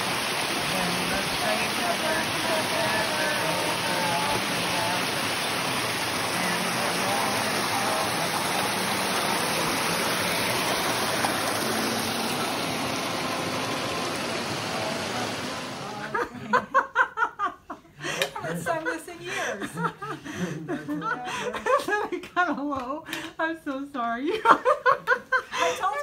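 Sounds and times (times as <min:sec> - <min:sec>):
creek water rushing over rocks: 0:00.0 - 0:16.1.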